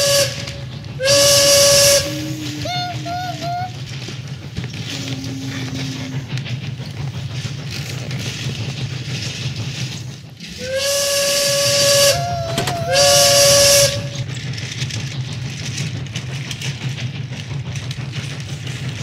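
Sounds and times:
steam train whistle: 0:00.0 - 0:04.1, 0:04.7 - 0:06.4, 0:10.5 - 0:14.3
steady low whir: 0:00.0 - 0:07.6
steam hissing: 0:00.0 - 0:19.0.

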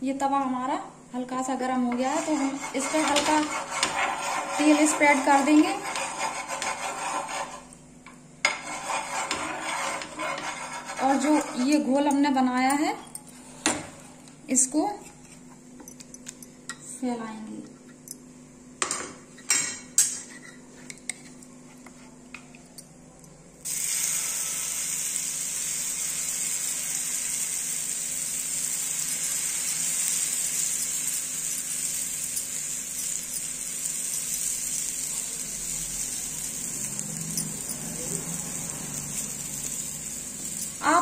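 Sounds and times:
batter sizzling in oil: 0:23.6 - 0:41.0.

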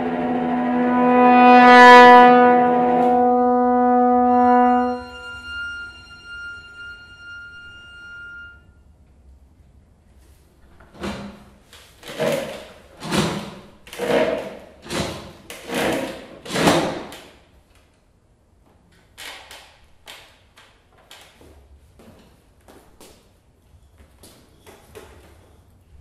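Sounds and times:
wooden stools scraping on floor: 0:11.0 - 0:17.0.

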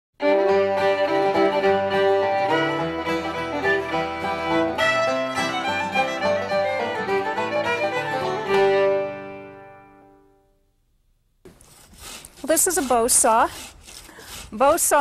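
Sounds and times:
instrumental string music: 0:00.2 - 0:10.4.

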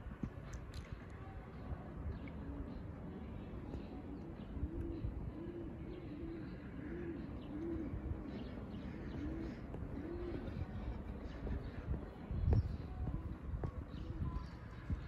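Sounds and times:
pigeon cooing: 0:04.4 - 0:10.8.

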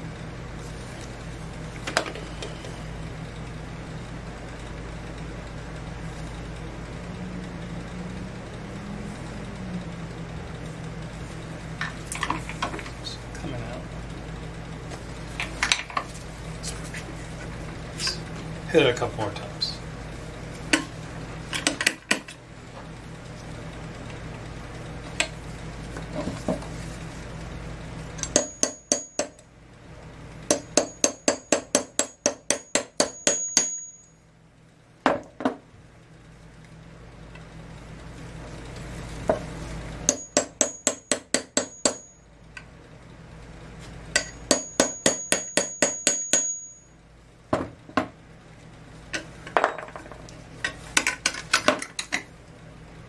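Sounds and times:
low steady hum: 0:00.0 - 0:53.0
hammer tapping metal punch: 0:28.2 - 0:29.4, 0:30.5 - 0:34.1, 0:40.1 - 0:42.1, 0:44.2 - 0:46.8.

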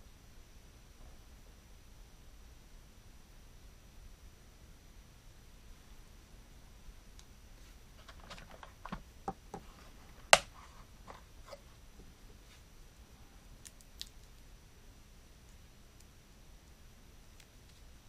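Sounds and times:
plastic toy clicks and knocks: 0:08.0 - 0:09.6.

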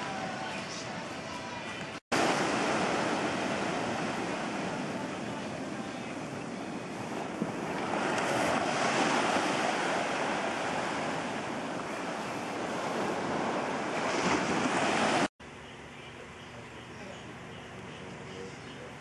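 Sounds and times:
sea waves washing: 0:02.1 - 0:15.3
wind buffeting microphone: 0:02.1 - 0:15.3.

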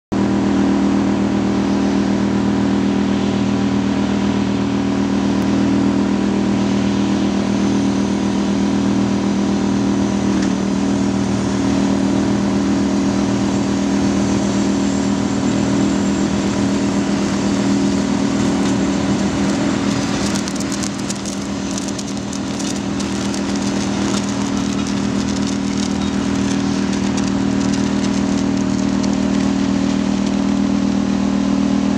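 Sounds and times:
snow blower engine running: 0:00.2 - 0:31.9
crackling clicks: 0:18.6 - 0:30.8.

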